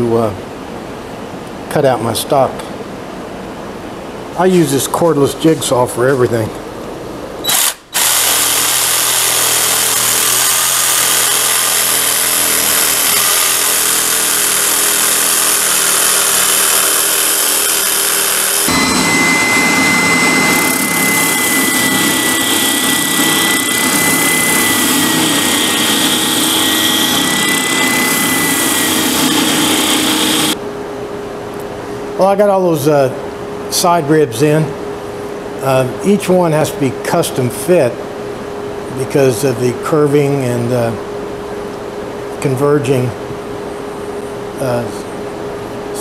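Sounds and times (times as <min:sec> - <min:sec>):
jigsaw cutting wood: 0:07.5 - 0:30.6
spindle sander whining: 0:07.5 - 0:30.6.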